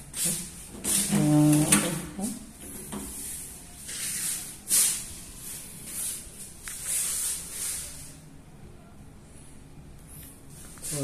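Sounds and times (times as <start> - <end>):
footstep scuffs and rustles: 2.4 - 8.1, 10.3 - 11.0.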